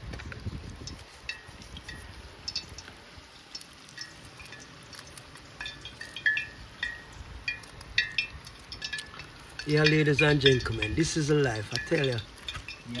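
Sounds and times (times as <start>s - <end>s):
light metallic clinks: 0.9s - 2.9s, 3.5s - 13.0s.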